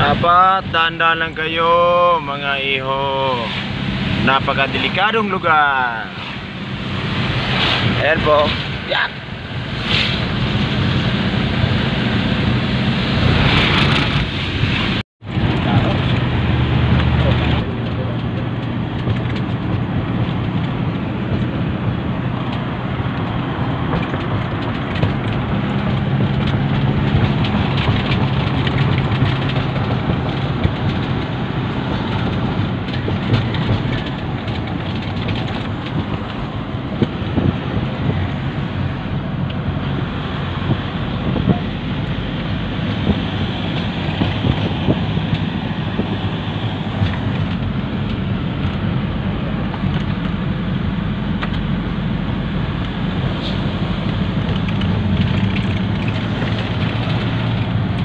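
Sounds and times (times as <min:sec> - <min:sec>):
tyre and road noise: 0:00.0 - 0:58.0
engine low hum: 0:03.0 - 0:58.0
small rattles and knocks: 0:22.4 - 0:37.6, 0:54.1 - 0:58.0.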